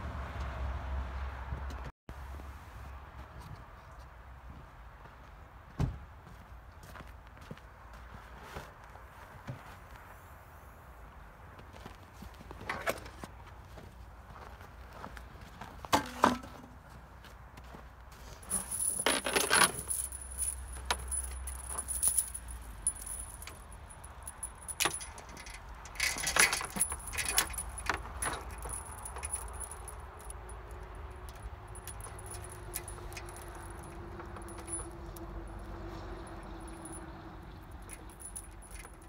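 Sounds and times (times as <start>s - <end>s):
steel chain rattling: 18.4s - 39.0s.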